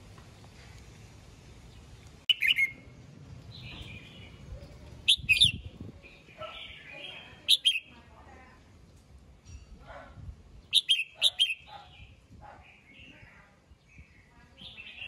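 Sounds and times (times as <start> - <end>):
bird singing clear phrases: 1.6 - 9.2, 10.5 - 15.0.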